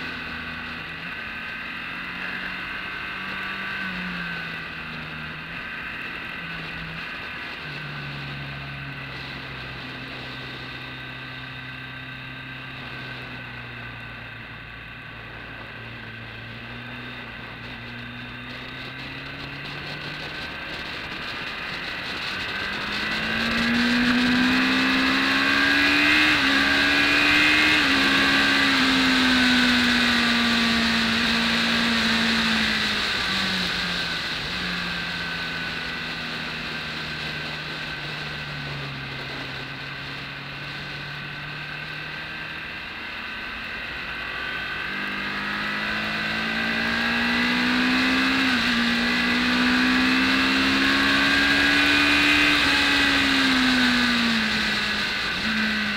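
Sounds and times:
motorcycle engine: 0.0 - 55.9
wind rush: 15.2 - 41.0.

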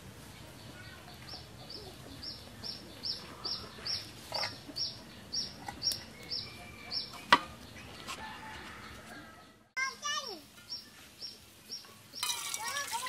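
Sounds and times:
small bird chirping: 0.6 - 8.1, 10.6 - 12.8
metal pot clanking on stove: 12.2 - 13.0.

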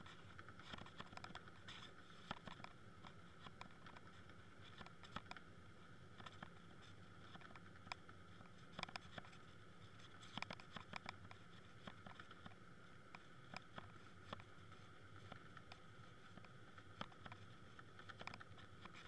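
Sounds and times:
low underwater hum: 0.0 - 19.0
underwater clicks and ticks: 0.3 - 5.5, 7.2 - 9.4, 10.1 - 14.5, 15.1 - 19.0.

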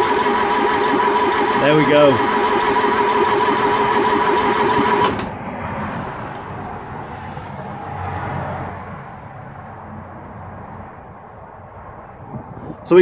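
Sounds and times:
starter motor cranking engine: 0.0 - 5.3.

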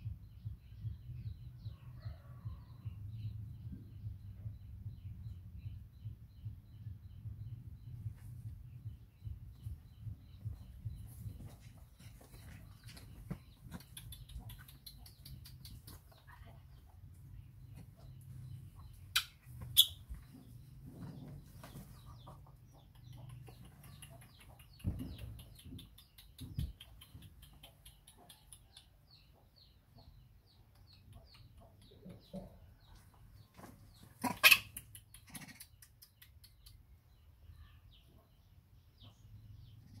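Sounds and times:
soft low thumps: 0.0 - 1.8, 2.4 - 13.8, 24.8 - 25.8.

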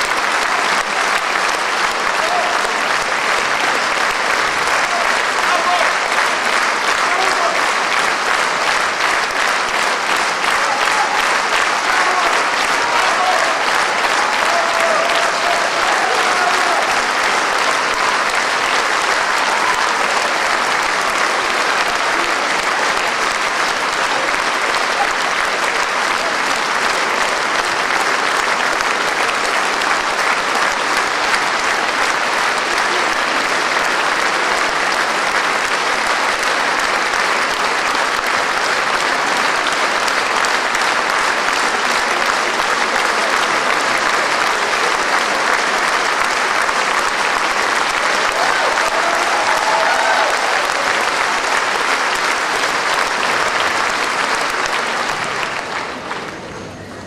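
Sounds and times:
large audience applauding: 0.0 - 57.0.

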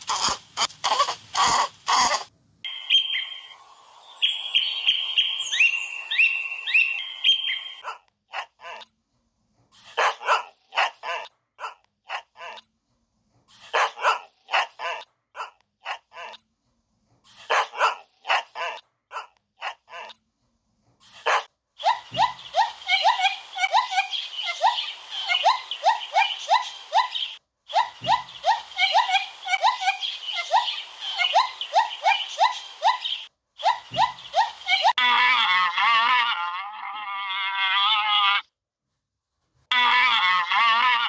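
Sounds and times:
parrot squawking: 0.0 - 8.9, 21.1 - 38.5
dog barking: 7.8 - 8.9, 9.9 - 12.6, 13.6 - 16.4, 17.4 - 20.1, 21.1 - 22.4.

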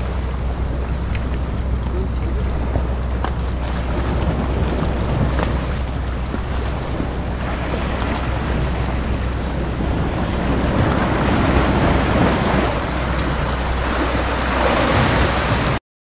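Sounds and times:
waves splashing against rocks: 0.0 - 15.8
wind rumbling on microphone: 0.0 - 15.8.

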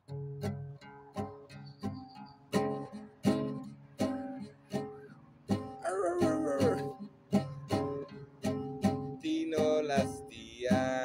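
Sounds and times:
acoustic guitar strumming: 0.0 - 11.0
man singing: 5.8 - 7.0, 9.1 - 11.0.

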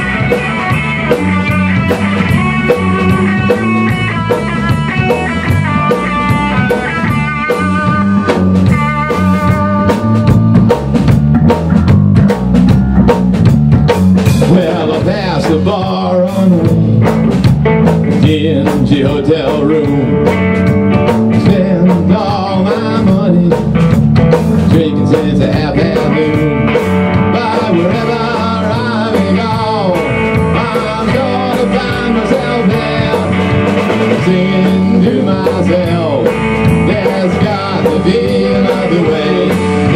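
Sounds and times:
electric guitar lead notes: 0.0 - 39.9
rock band playing live: 0.0 - 39.9.

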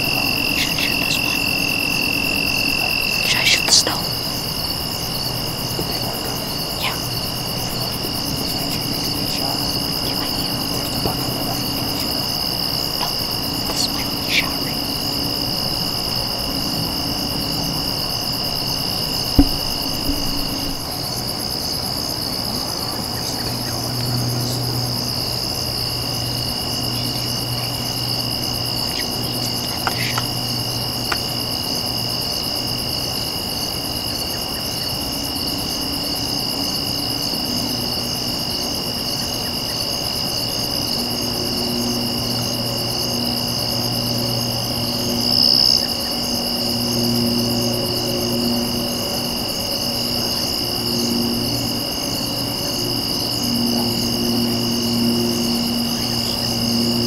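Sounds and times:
lower insect trilling: 0.0 - 21.6, 22.4 - 32.4
faint low hum: 0.0 - 32.4
high insect trilling: 0.0 - 35.0, 38.0 - 57.0.

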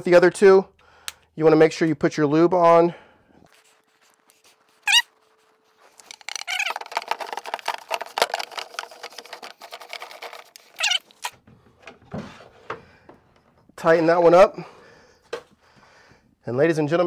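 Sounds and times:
hands rubbing and scraping: 3.4 - 11.4
short high squeak: 4.7 - 5.2, 10.7 - 11.3.

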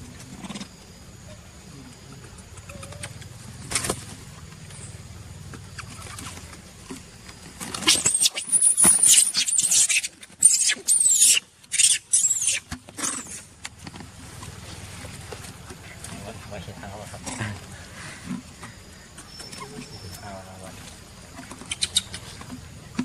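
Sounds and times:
monkey screaming: 7.9 - 13.3.

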